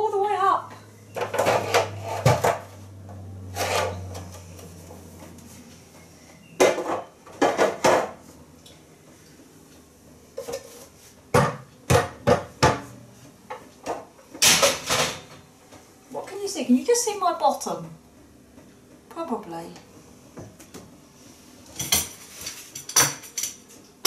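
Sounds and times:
items knocking on wooden cupboards: 0:11.3 - 0:12.9.

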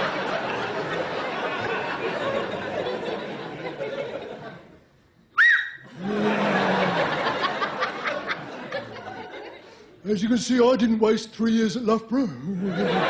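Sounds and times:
audience laughter: 0:00.0 - 0:04.8, 0:05.9 - 0:09.9, 0:12.4 - 0:13.0.

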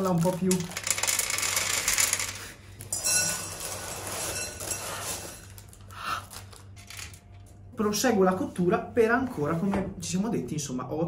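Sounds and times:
paper crinkling: 0:00.0 - 0:01.1, 0:02.7 - 0:07.6
dried beans pouring into glass bowl: 0:02.9 - 0:05.8.

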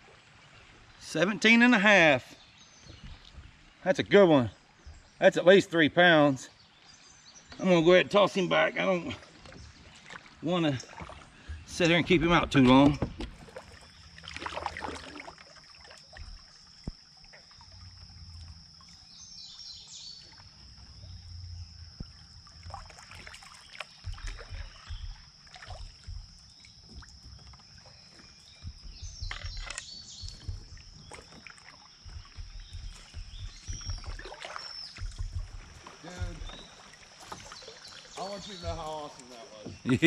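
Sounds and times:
water knocking around kayak hull: 0:02.7 - 0:05.2, 0:07.4 - 0:40.0
low rumbles: 0:10.8 - 0:15.1, 0:20.3 - 0:40.0
bird chirps: 0:23.2 - 0:40.0.

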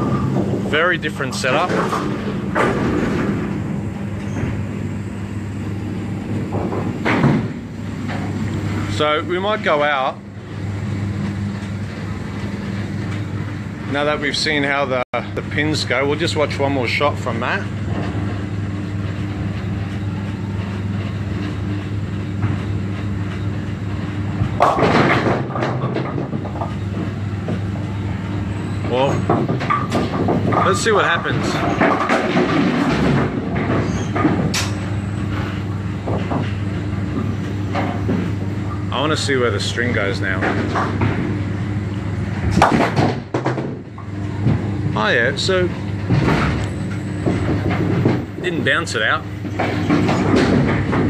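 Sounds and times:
low rumble of bowling alley: 0:00.0 - 0:51.0
machinery hum: 0:00.0 - 0:51.0
bowling pins crashing: 0:24.5 - 0:26.6, 0:29.2 - 0:34.6, 0:42.5 - 0:43.8.

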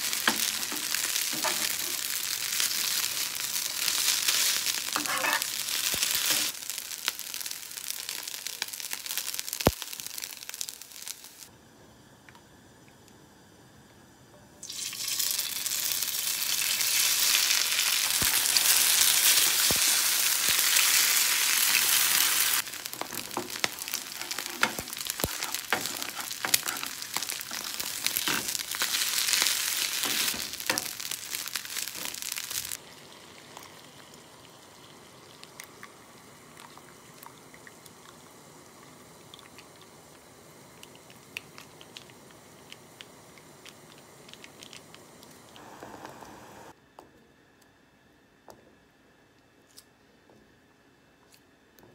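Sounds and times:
food sizzling in oil: 0:00.0 - 0:11.5, 0:14.6 - 0:36.5
water heating in pot hiss: 0:00.0 - 0:11.5, 0:14.6 - 0:46.8
chopsticks scraping pan: 0:05.0 - 0:05.5.

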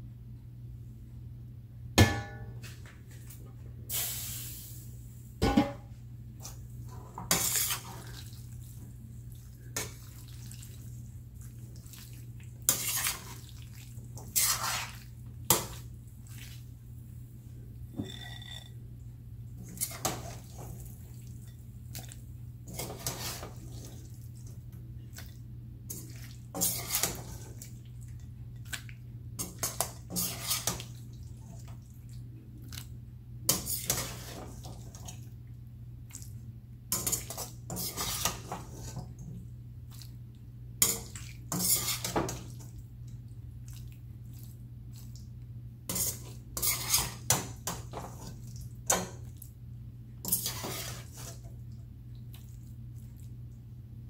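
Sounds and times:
steady low hum: 0:00.0 - 0:30.2
metal spoon scraping frying pan: 0:26.6 - 0:27.3, 0:37.0 - 0:39.0, 0:40.8 - 0:42.2, 0:45.9 - 0:47.4, 0:50.2 - 0:51.4.

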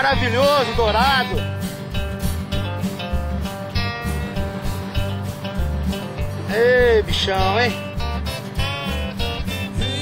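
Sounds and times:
guitar music over a beat: 0:00.0 - 0:10.0.

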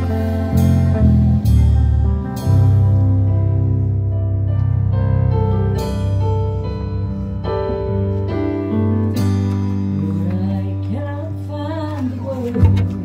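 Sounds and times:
low bass note: 0:00.0 - 0:09.0
clean electric guitar melody: 0:00.0 - 0:13.0
keyboard accompaniment: 0:00.0 - 0:13.0.

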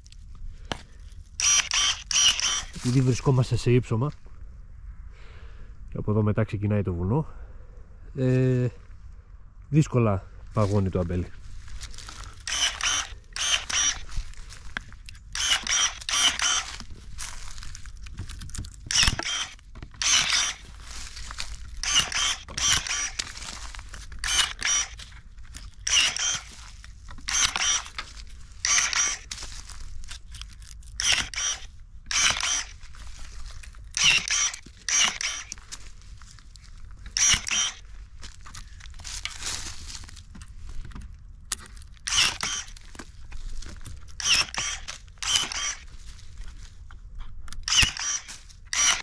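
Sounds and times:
electric pruning shears snipping: 0:01.4 - 0:03.1, 0:11.9 - 0:17.4, 0:18.4 - 0:32.9, 0:33.8 - 0:35.8, 0:37.0 - 0:37.9, 0:42.0 - 0:43.0, 0:44.1 - 0:45.9, 0:47.5 - 0:49.0.

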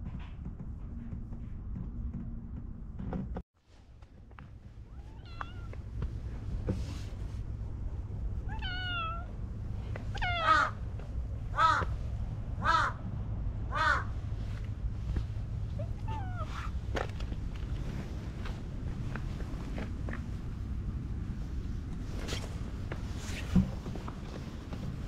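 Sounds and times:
steady low rumble: 0:00.0 - 0:25.0
cat meowing: 0:04.9 - 0:05.8, 0:08.5 - 0:09.3, 0:10.1 - 0:10.8, 0:15.8 - 0:16.7.

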